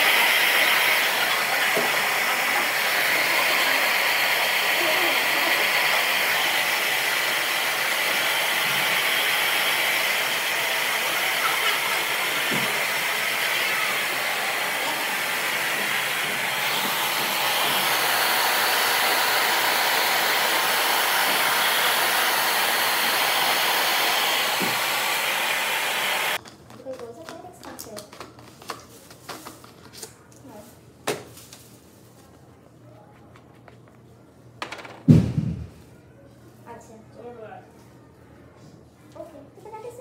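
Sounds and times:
hair dryer blowing: 0.0s - 26.4s.

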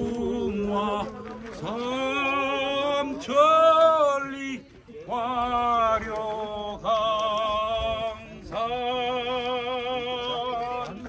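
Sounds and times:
man singing unaccompanied: 0.0s - 11.0s.

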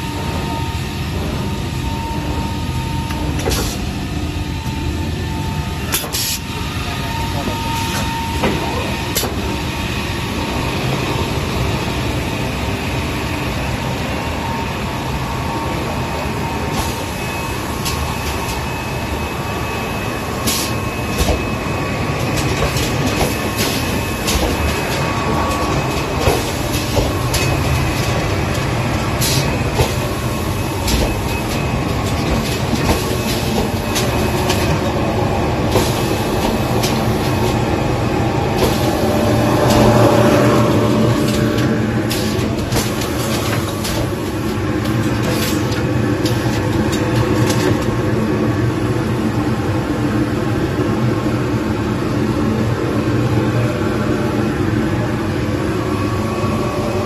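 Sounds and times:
machine clacks and knocks: 22.2s - 30.2s, 30.8s - 35.0s.

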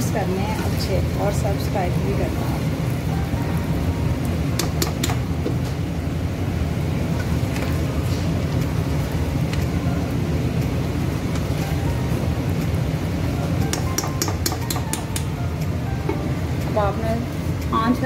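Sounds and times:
steady low hum: 0.0s - 18.0s
metal spoon clinking against pan: 13.7s - 15.0s.

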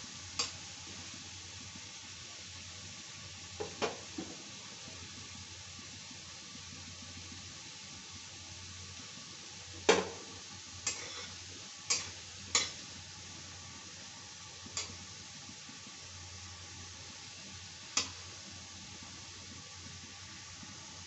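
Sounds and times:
faint oil sizzle: 0.0s - 21.0s
metal spatula striking pan: 11.9s - 12.8s.

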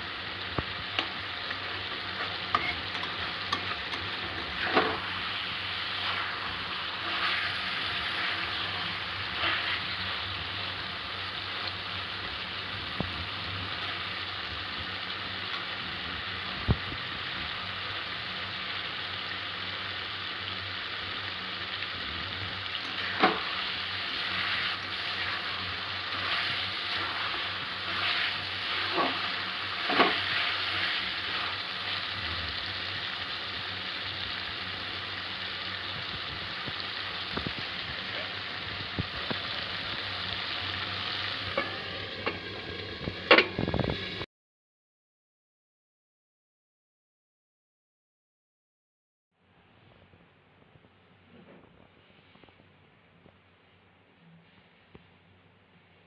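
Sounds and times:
food sizzling in a pan: 0.0s - 44.3s
spatula stirring and scraping: 2.2s - 10.2s, 22.8s - 32.0s.

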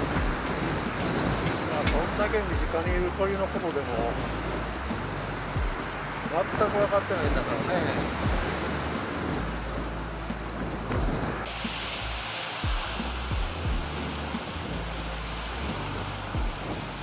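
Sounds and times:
short low knocks: 0.0s - 3.2s, 4.8s - 6.0s, 8.1s - 8.7s, 10.2s - 11.5s, 12.7s - 14.0s
river water rushing: 0.0s - 17.0s
wind buffeting microphone: 0.0s - 17.0s.

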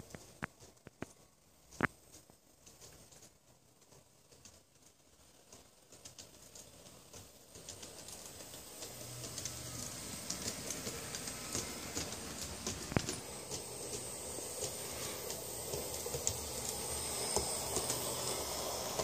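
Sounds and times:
model train clicking rattle: 1.7s - 19.0s
model train high whine: 6.1s - 19.0s.

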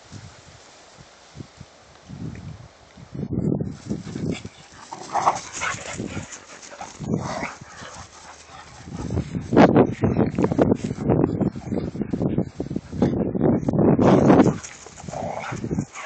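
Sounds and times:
dogs scuffling: 3.8s - 9.6s, 14.2s - 16.0s
dogs barking and yipping: 3.8s - 12.2s, 14.3s - 16.0s.

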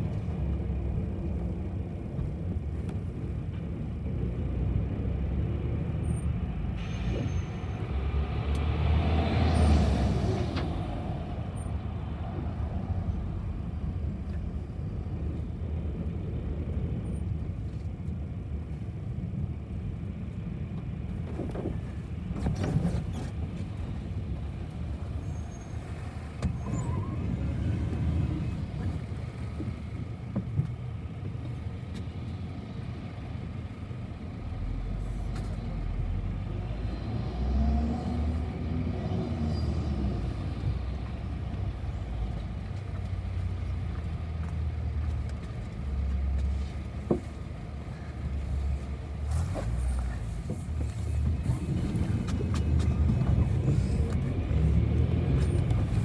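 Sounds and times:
bus engine and road rumble: 0.0s - 56.0s
air brake hiss: 6.8s - 7.7s.

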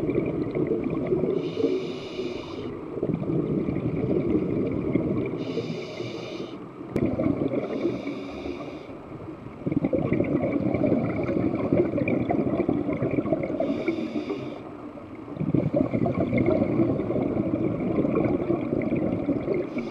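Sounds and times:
exhaled bubbles gurgling underwater: 0.0s - 19.9s
regulator hiss: 1.4s - 2.8s, 5.4s - 6.7s, 7.6s - 8.9s, 13.6s - 14.7s.

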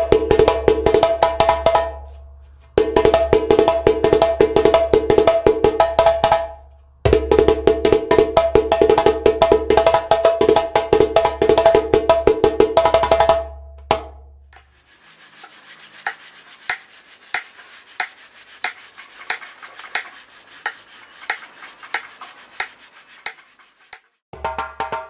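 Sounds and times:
djembe played fast by hand: 0.0s - 2.0s, 2.7s - 14.2s, 24.4s - 25.0s.

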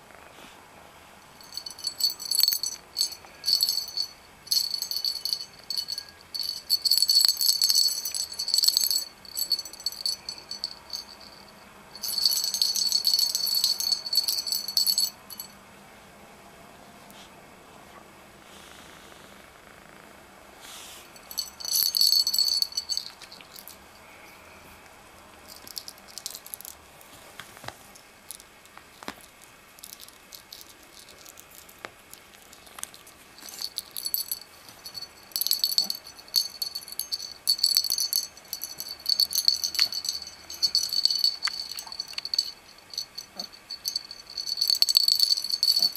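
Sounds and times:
small bell jingling: 1.4s - 15.6s, 21.2s - 24.2s, 25.5s - 26.8s, 29.2s - 45.9s.

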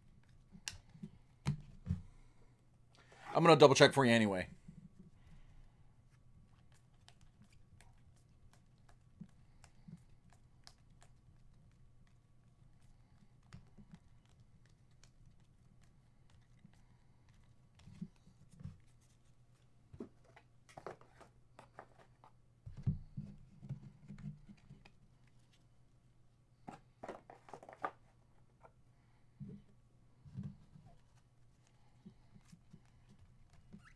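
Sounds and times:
trading cards flipped by hand: 6.4s - 23.0s, 26.6s - 28.7s.

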